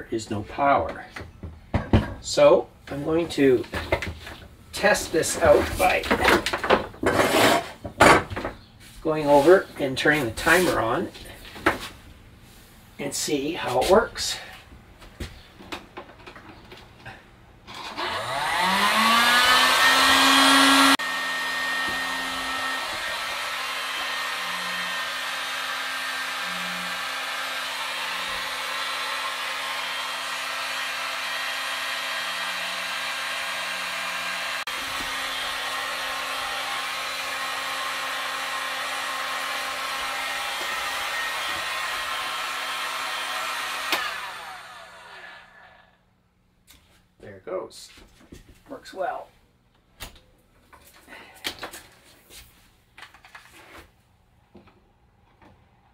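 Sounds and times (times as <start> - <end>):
heat gun fan blowing: 17.7 - 45.9.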